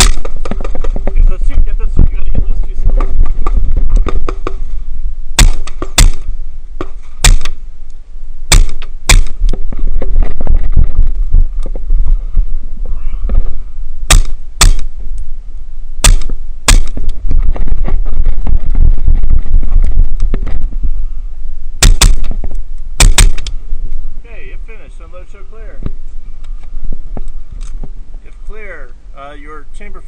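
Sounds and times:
suppressed rifle shots: 0.0s - 1.2s, 5.3s - 7.6s, 8.5s - 10.5s, 14.1s - 15.0s, 16.0s - 17.8s, 21.8s - 23.6s
low rumble: 0.0s - 30.0s.

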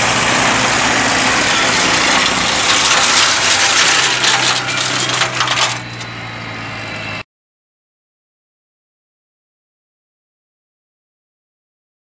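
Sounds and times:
flail mulcher shredding wood: 0.0s - 6.6s
tractor engine hum: 0.0s - 7.2s.

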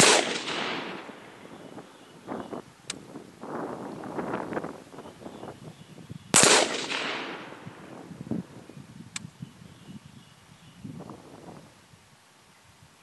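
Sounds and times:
rifle shot: 0.0s - 1.4s, 6.3s - 7.8s
rolling echo: 0.0s - 2.5s, 6.4s - 8.1s
faint sharp tick: 2.8s - 3.0s, 9.1s - 9.3s.

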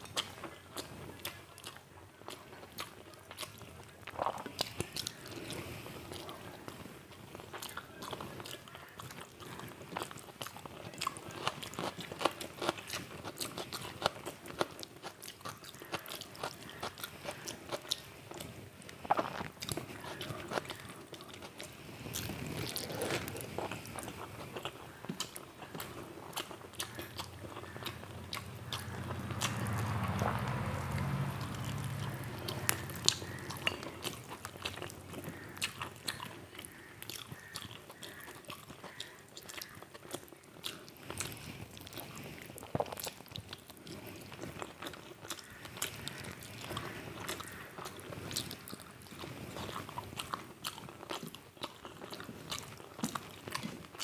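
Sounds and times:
crunching and chewing food: 0.0s - 54.0s
wet chewing sounds: 0.0s - 54.0s
low humming: 27.3s - 34.0s.

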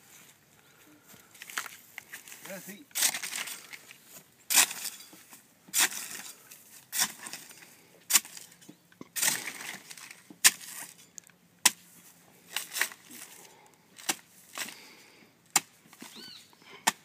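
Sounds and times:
blade chopping agave leaves: 2.9s - 3.7s, 4.5s - 5.1s, 5.7s - 8.6s, 9.2s - 11.0s, 11.6s - 11.9s, 14.0s - 14.9s, 15.5s - 16.2s.

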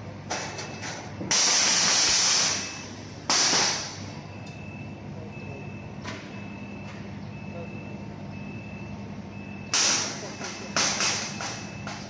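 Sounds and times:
laser cutting machine hum: 0.0s - 12.0s
faint beeping tone: 4.2s - 12.0s.

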